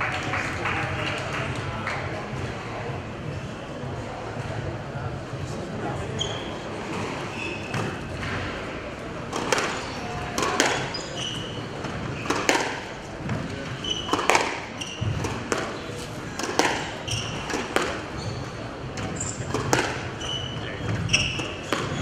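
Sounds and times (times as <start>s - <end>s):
shoes squeaking on wooden floor: 6.0s - 8.6s, 9.3s - 22.0s
squash ball hitting rackets and walls: 6.8s - 22.0s.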